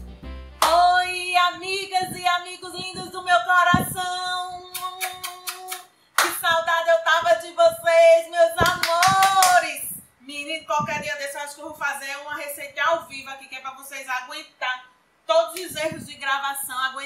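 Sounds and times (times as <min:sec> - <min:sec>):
hand claps: 0:04.7 - 0:06.4, 0:08.6 - 0:09.6.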